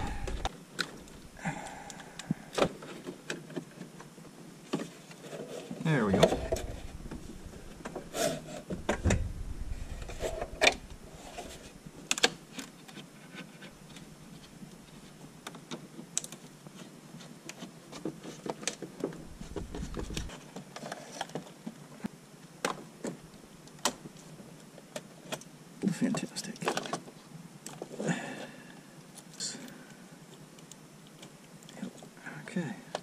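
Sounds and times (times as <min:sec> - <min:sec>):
dull thumps: 0:06.1 - 0:11.8, 0:19.2 - 0:20.3.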